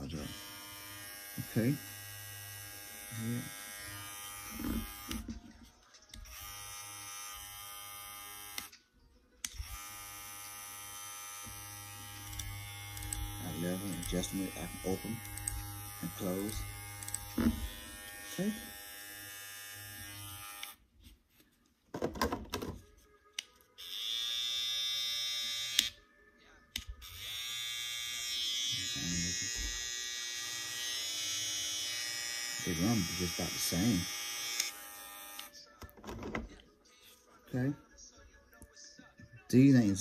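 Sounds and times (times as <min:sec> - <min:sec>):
hair clipper buzzing: 0:00.0 - 0:05.3, 0:06.2 - 0:08.7, 0:09.5 - 0:20.8, 0:23.8 - 0:26.0, 0:27.1 - 0:35.5.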